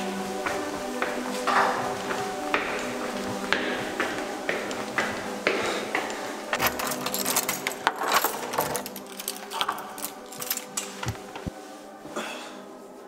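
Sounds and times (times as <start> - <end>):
keys jangling in door lock: 6.6 - 11.3.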